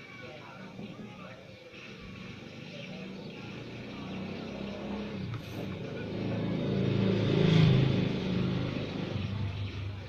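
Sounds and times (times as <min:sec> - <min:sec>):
vehicle engine passing by: 0:02.1 - 0:10.0.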